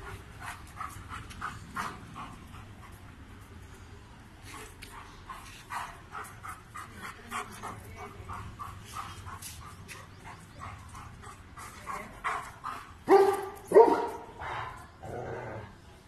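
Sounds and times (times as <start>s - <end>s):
dog barking: 13.1s - 14.3s.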